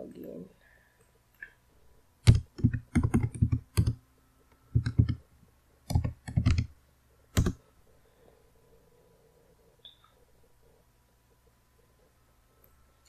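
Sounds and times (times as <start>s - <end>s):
computer keyboard typing: 2.2s - 4.0s, 4.7s - 5.2s, 5.9s - 7.6s.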